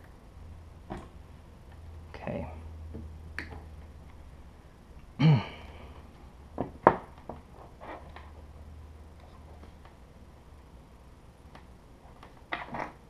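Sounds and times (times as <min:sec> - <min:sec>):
steady low hum: 0:00.0 - 0:13.0
person grunting: 0:05.2 - 0:05.9.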